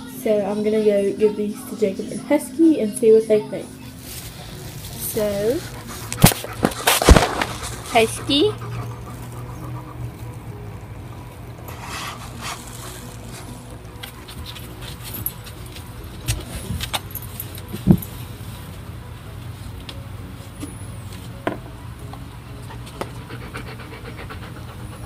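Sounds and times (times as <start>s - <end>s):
low mechanical hum: 0.0s - 25.0s
chain collar jangling: 14.4s - 18.2s.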